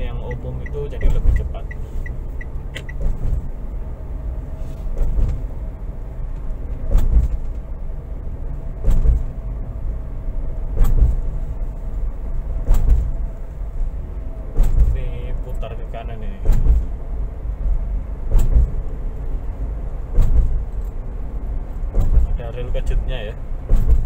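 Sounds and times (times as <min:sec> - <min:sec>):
car cabin road noise: 0:00.0 - 0:24.0
tyres thumping over rumble strips: 0:02.7 - 0:03.6, 0:04.7 - 0:05.6, 0:06.4 - 0:07.7, 0:08.8 - 0:09.4, 0:10.7 - 0:11.3, 0:12.5 - 0:13.3, 0:14.5 - 0:15.0, 0:16.3 - 0:17.0, 0:18.2 - 0:19.0, 0:20.0 - 0:21.0, 0:21.7 - 0:22.5, 0:23.6 - 0:24.0.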